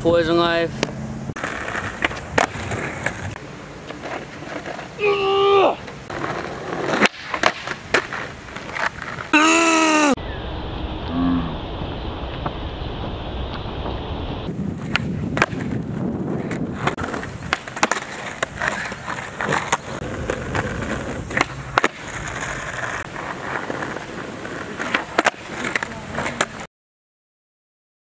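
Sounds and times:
skateboard wheels rolling on concrete: 0.0s - 26.7s
skateboard tail clacks: 0.8s - 10.2s, 14.7s - 26.7s.

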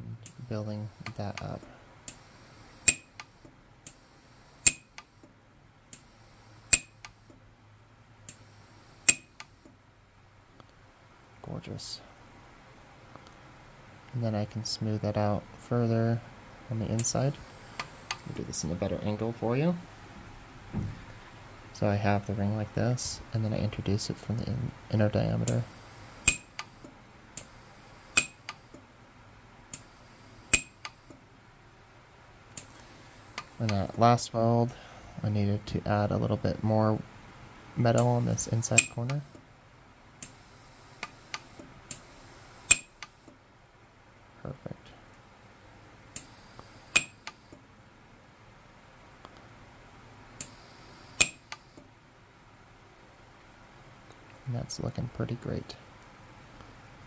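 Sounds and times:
faint welder click: 0.2s - 5.3s, 5.9s - 7.4s, 8.3s - 9.8s, 17.0s - 18.3s, 26.2s - 28.8s, 29.7s - 31.2s, 40.2s - 43.4s, 46.1s - 47.6s, 50.4s - 51.9s
welder sharp snap: 0.2s - 5.3s, 6.7s - 7.3s, 8.3s - 9.6s, 17.0s - 18.3s, 25.5s - 28.8s, 30.5s - 31.2s, 38.0s - 39.4s, 40.2s - 40.4s, 41.0s - 43.4s, 46.2s - 47.6s, 50.4s - 51.8s
welder sharp snaps with ring: 2.8s - 3.3s, 4.6s - 5.1s, 6.7s - 7.2s, 8.3s - 9.5s, 26.3s - 26.7s, 28.1s - 28.6s, 30.5s - 31.0s, 41.0s - 43.2s, 46.9s - 47.4s, 51.2s - 51.7s.

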